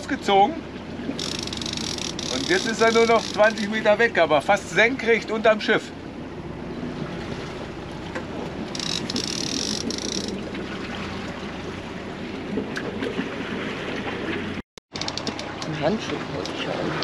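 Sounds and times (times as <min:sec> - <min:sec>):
sea water washing along a hull: 0:00.0 - 0:17.0
wind: 0:00.0 - 0:17.0.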